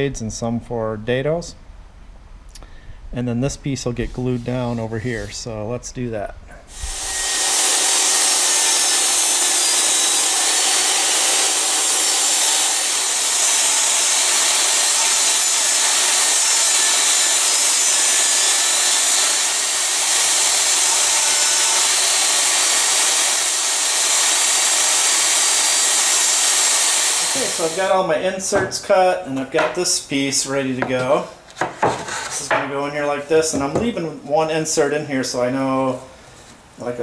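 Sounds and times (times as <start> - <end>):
table saw ripping plywood: 6.7 - 28.8, 30.8 - 32.6.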